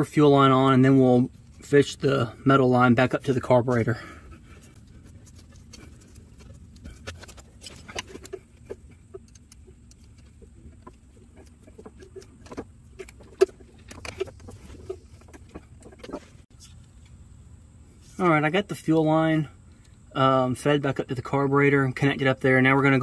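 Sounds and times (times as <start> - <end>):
hands clicking and tapping on fuel line: 4.4 - 16.4.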